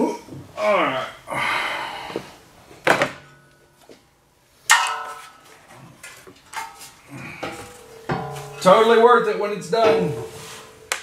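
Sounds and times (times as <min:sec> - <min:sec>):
metal brace clanking: 0:04.7 - 0:11.0.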